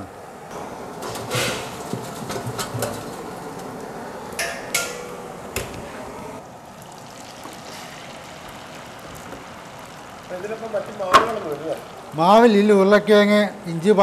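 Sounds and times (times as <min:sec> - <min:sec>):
hot oil sizzling: 0:06.3 - 0:14.0.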